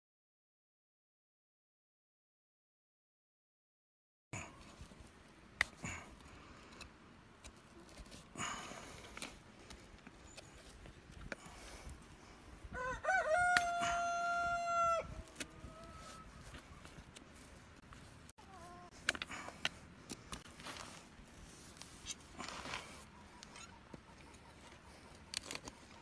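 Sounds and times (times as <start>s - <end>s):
rooster crowing: 12.7s - 16.5s.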